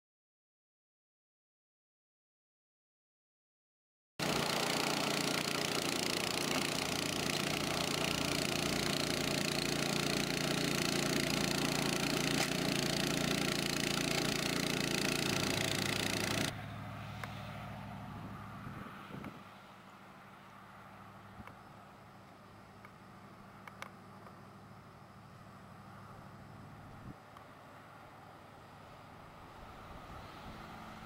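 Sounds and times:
small gasoline engine running: 4.2s - 16.9s
blade cutting through turf: 4.2s - 17.6s.

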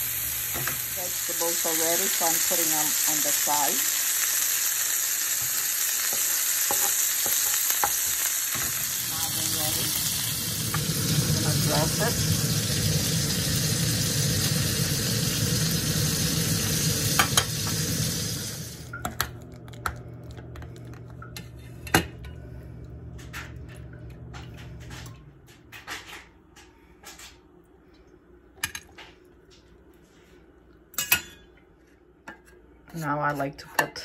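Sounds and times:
food sizzling in a hot pan: 0.0s - 18.9s.

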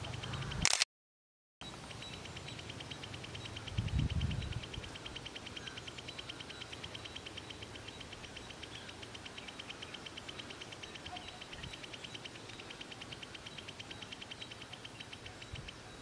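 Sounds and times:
bird singing rapid ticking notes: 0.0s - 0.6s, 1.6s - 16.0s.

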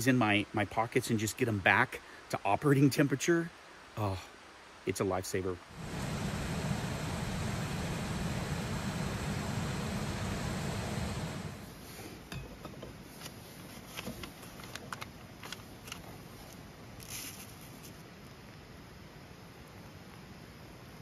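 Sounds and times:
stove burner hissing: 5.7s - 12.3s.

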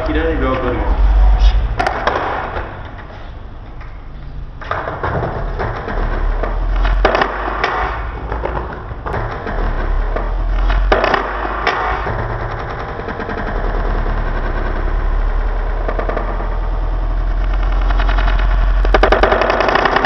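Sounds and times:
skateboard clacks: 1.8s - 15.0s.

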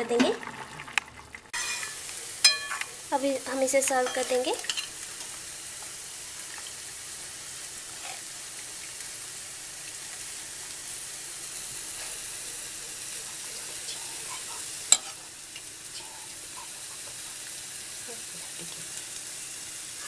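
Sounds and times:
hot pan sizzling: 0.0s - 20.0s
ladle clinking on plate: 1.6s - 2.9s, 14.9s - 15.2s.

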